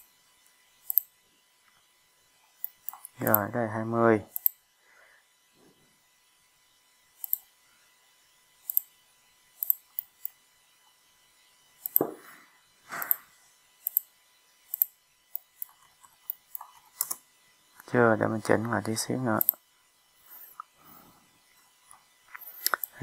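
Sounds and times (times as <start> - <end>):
computer mouse clicking: 0.8 - 1.1, 2.6 - 3.4, 4.3 - 4.6, 7.2 - 7.5, 8.6 - 8.9, 9.6 - 10.4, 11.8 - 12.1, 13.0 - 13.2, 13.8 - 14.1, 14.7 - 17.2, 19.4 - 19.6, 22.4 - 23.0.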